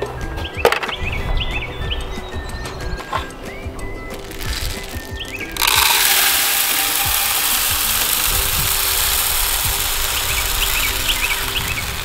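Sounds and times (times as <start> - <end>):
bird chirps: 0.0 - 5.6, 9.4 - 12.0
birdseed pouring into feeder: 4.2 - 12.0.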